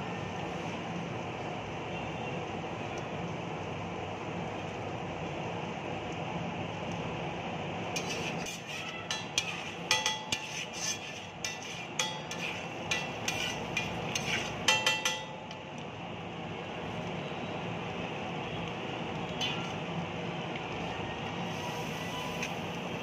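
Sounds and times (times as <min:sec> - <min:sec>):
steady background noise: 0:00.0 - 0:23.0
metal spatula clinking on griddle: 0:08.0 - 0:15.5.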